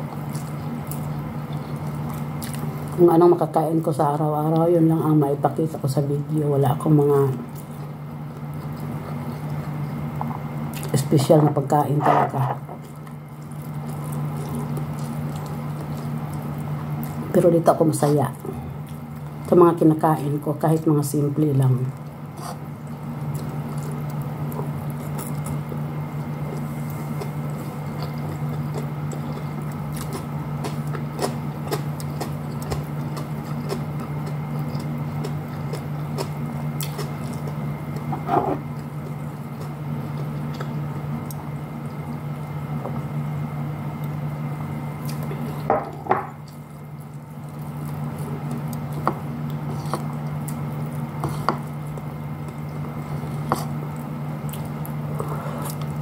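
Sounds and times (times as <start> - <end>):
person chewing food: 0.0 - 3.0, 7.5 - 10.9, 12.8 - 17.3, 18.5 - 19.5, 22.0 - 43.1, 45.0 - 45.7, 46.3 - 56.0
steady low hum: 0.0 - 56.0.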